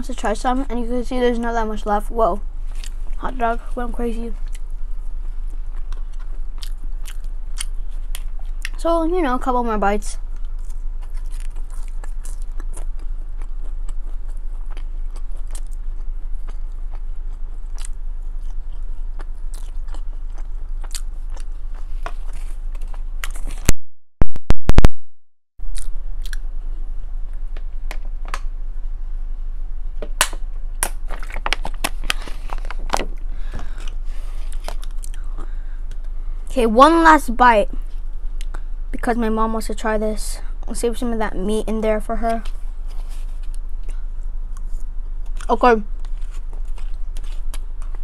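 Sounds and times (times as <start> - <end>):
low hum: 0.0 - 48.0
close chewing and biting: 4.4 - 8.8, 10.2 - 23.7, 25.7 - 26.5, 30.2 - 36.2, 43.0 - 48.0.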